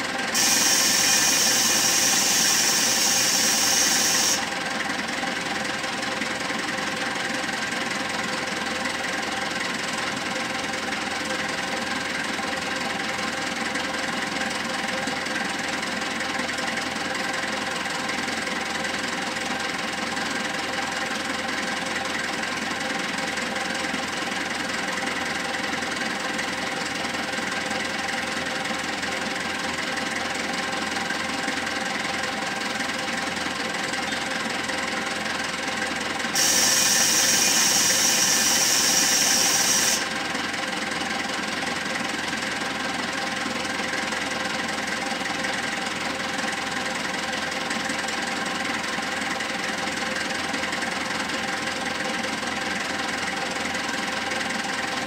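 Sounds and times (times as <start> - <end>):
diesel engine idling: 0.0 - 55.0
loud hiss: 0.4 - 4.5, 36.4 - 40.1.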